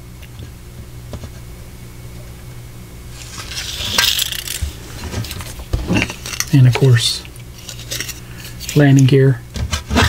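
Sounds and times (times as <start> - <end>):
low steady hum: 0.0 - 10.0
tape measure scraping rustle: 3.1 - 8.9.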